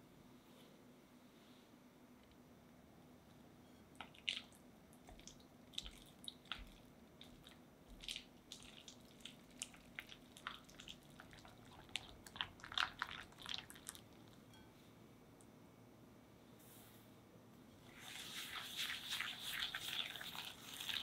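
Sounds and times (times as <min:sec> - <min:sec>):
cream cheese squishing: 0:04.0 - 0:14.4, 0:17.9 - 0:21.0.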